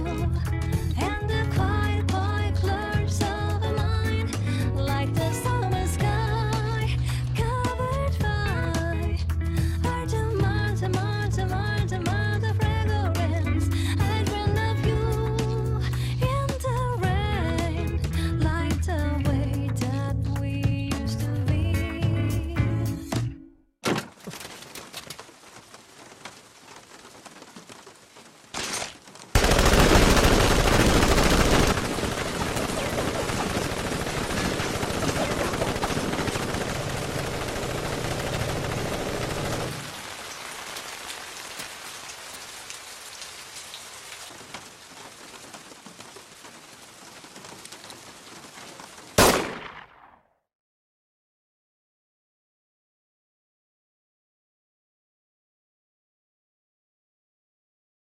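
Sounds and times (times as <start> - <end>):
rain falling: 24.2 - 49.8.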